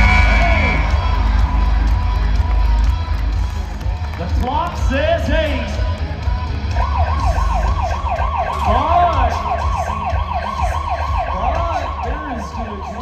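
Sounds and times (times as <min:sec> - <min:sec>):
low crowd rumble: 0:00.0 - 0:12.1
siren-like yelping tone: 0:06.7 - 0:13.0.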